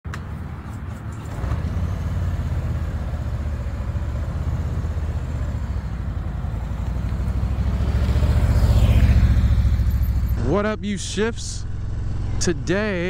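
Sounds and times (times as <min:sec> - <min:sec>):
motorcycle engine running: 0:01.9 - 0:10.6, 0:11.5 - 0:13.0.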